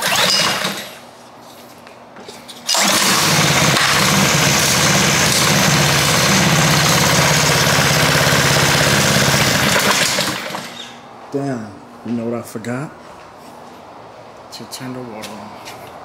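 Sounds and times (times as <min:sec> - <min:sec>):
pressure washer engine running: 0:02.7 - 0:10.9.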